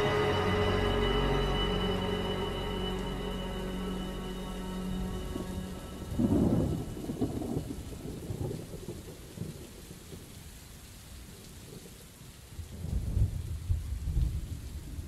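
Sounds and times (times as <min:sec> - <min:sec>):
steady rain: 0:00.0 - 0:15.0
thunder rolling: 0:05.2 - 0:09.7.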